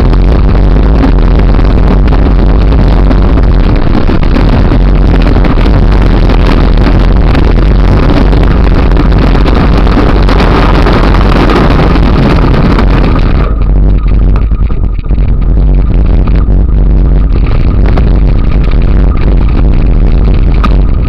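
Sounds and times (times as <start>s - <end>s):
bike rattling over gravel: 0.0s - 21.0s
wind buffeting microphone: 0.0s - 21.0s.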